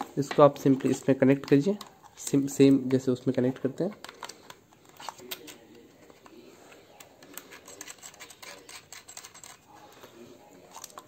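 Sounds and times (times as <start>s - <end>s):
small metallic clicks and scrapes: 7.0s - 10.1s, 10.7s - 11.0s.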